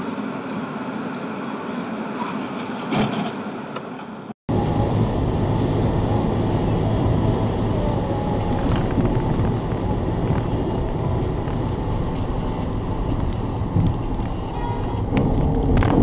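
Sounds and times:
tyres on tarmac: 5.0 - 16.0.

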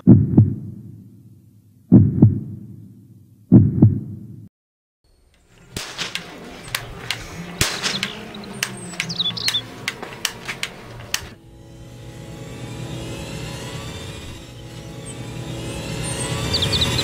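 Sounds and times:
deep double thump: 0.0 - 1.0, 1.9 - 2.8, 3.5 - 4.3
low steady hum: 5.1 - 17.0
toy cap gun cracks: 5.3 - 11.4.

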